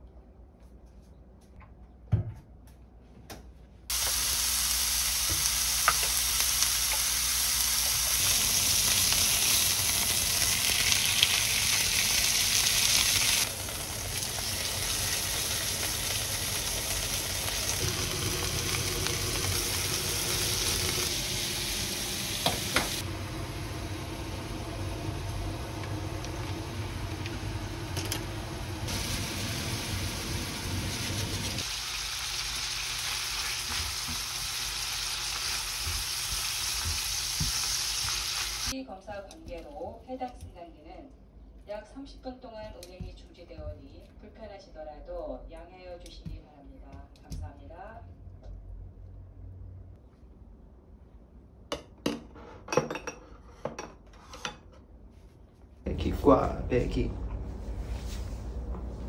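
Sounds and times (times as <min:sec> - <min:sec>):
beef sizzling in pan: 0:03.9 - 0:38.8.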